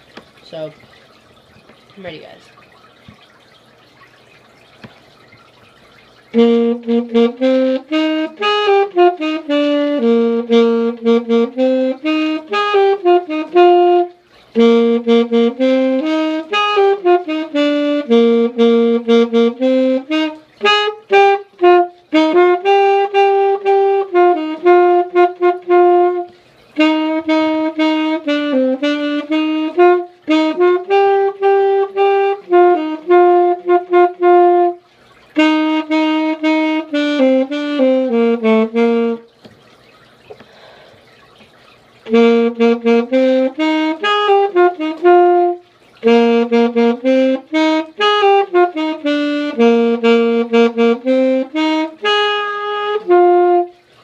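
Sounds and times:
saxophone playing melody: 0:05.8 - 0:39.4, 0:42.0 - 0:54.0.

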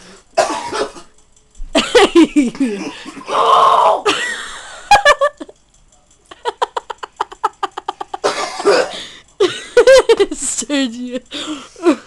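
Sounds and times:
boy coughing and sputtering: 0:00.4 - 0:01.2, 0:01.8 - 0:04.3, 0:07.9 - 0:10.4.

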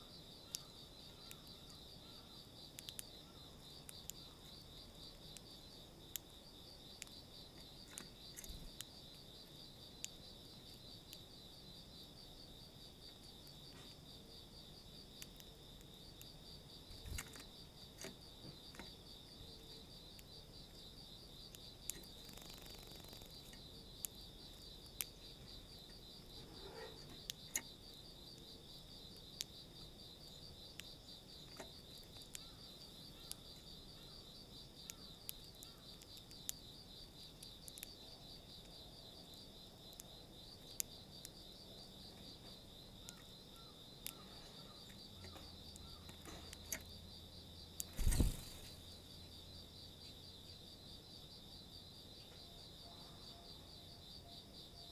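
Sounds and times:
insect trilling: 0:00.0 - 0:13.4, 0:14.3 - 0:50.7
birds pecking seed in plastic tray: 0:00.5 - 0:11.3, 0:14.8 - 0:41.4, 0:44.0 - 0:47.0.

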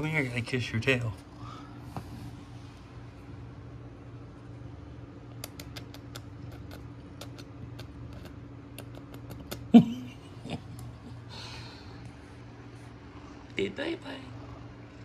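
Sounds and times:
steady low hum: 0:00.0 - 0:15.0
kissing smacks: 0:05.3 - 0:09.7.

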